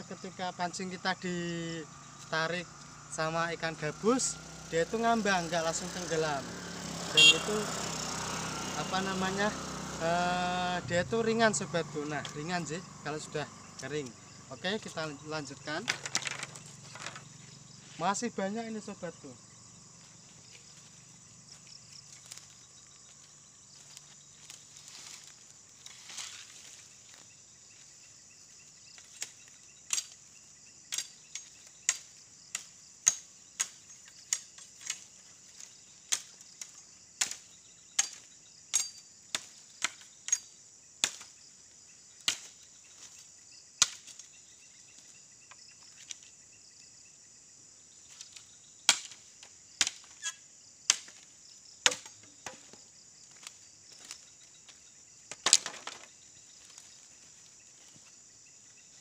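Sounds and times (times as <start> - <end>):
high insect drone: 0.0 - 59.0
machete chopping bamboo: 29.1 - 30.2, 30.9 - 35.1, 36.1 - 41.4, 42.2 - 42.6, 43.8 - 44.3, 48.9 - 50.2, 50.9 - 54.2.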